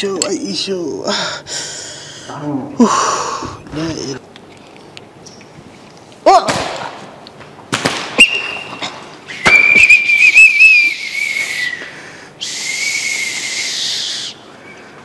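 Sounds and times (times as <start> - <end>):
whistle blasts: 8.2 - 14.4.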